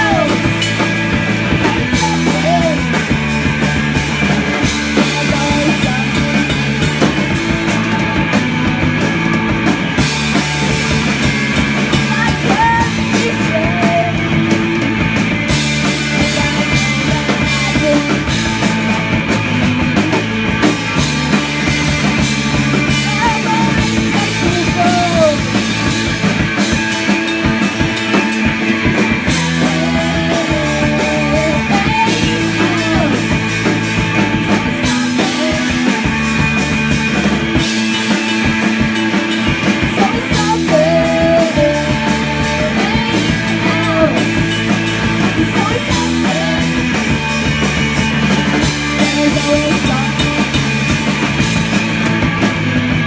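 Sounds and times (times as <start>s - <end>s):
person singing: 0.0s - 0.8s, 1.4s - 3.2s, 4.6s - 8.4s, 11.9s - 14.5s, 15.8s - 19.0s, 22.7s - 25.6s, 29.2s - 36.5s, 39.7s - 44.6s, 45.2s - 47.4s, 48.7s - 50.6s
live rock band playing: 0.0s - 53.0s.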